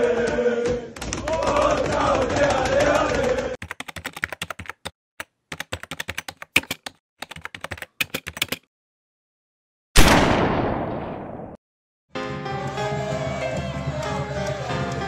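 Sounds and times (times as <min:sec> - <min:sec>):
keyboard typing clicks: 0:01.0 - 0:08.7.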